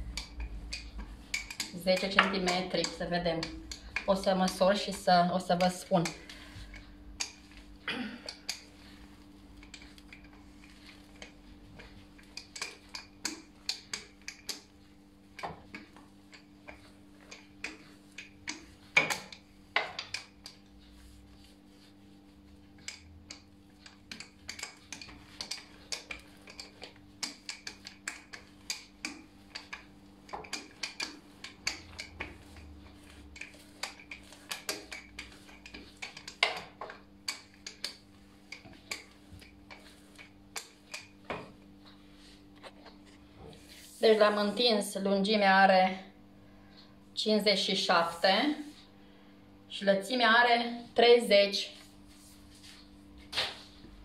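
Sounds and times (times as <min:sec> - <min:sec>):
rolling pin clicking on countertop: 0:00.1 - 0:06.4, 0:09.6 - 0:20.7, 0:22.8 - 0:41.6.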